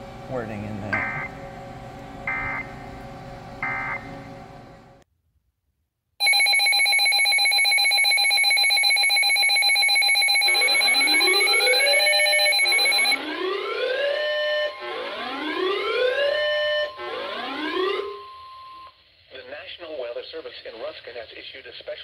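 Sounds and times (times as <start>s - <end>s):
steady alarm tone: 0.1s - 2.9s, 3.6s - 4.4s, 6.2s - 19.0s
rapidly pulsing electronic beep: 6.4s - 13.2s.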